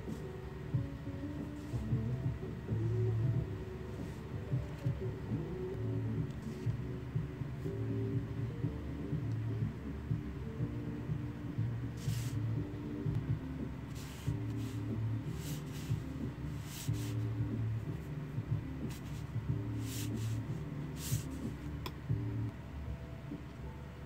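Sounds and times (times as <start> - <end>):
soft background music: 0.0 - 24.0
brush swishing across paper: 12.0 - 12.5, 13.9 - 17.3, 18.8 - 21.7.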